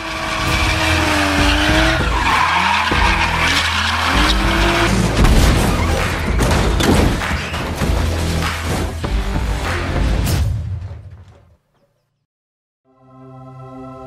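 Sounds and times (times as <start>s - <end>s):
car engine revving: 0.0s - 6.2s
tyres skidding: 0.0s - 10.0s
music with deep bass: 0.5s - 10.4s.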